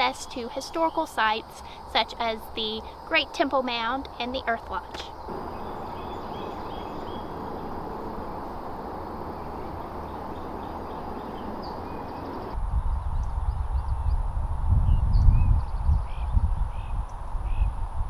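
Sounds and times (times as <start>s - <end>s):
steady background hiss: 0.0s - 12.6s
bird calls: 4.8s - 12.6s
wind rumble on microphone: 5.3s - 18.0s.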